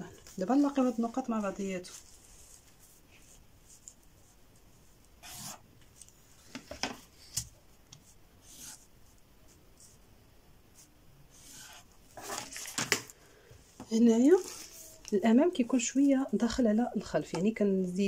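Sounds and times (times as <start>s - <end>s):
marker scratching on paper: 5.2s - 5.6s, 8.4s - 8.9s, 10.8s - 11.9s.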